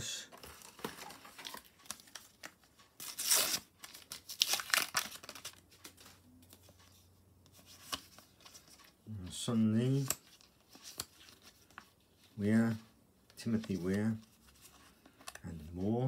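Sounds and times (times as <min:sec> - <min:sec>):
paper crinkling: 0:00.3 - 0:06.8.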